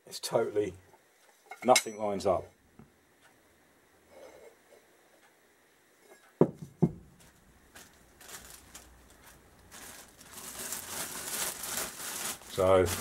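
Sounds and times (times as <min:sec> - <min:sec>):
parts rustling on plastic bag: 0:07.2 - 0:13.0.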